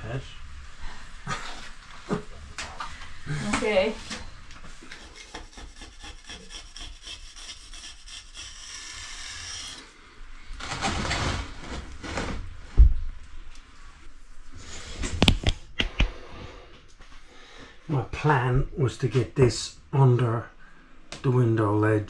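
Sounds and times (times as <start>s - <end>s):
hands rubbing on stone slab: 4.8s - 8.7s.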